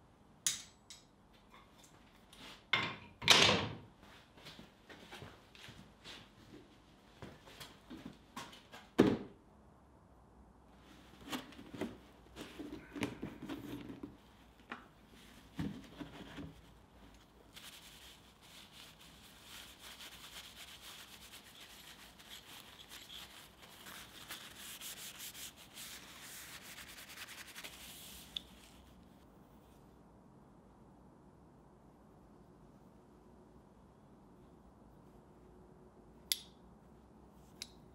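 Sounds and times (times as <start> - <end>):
paper towel scrubbing metal: 17.5 - 28.4.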